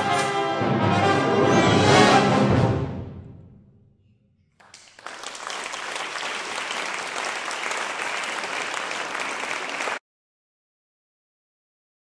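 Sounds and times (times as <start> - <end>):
audience applauding: 4.6 - 10.0.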